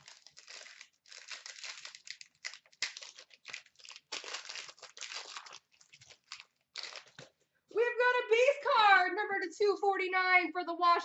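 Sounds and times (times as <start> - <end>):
plastic wrapping crinkling and tearing: 0.0 - 7.4.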